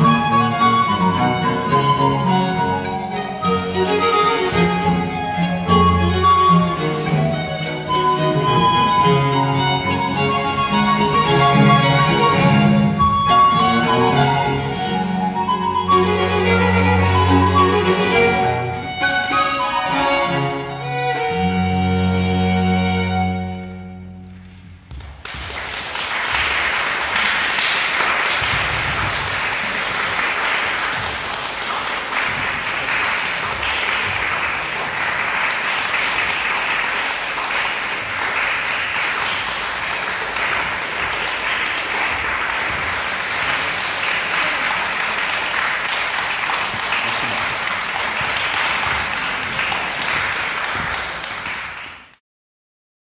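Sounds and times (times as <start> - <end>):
audience applauding: 25.0 - 52.2.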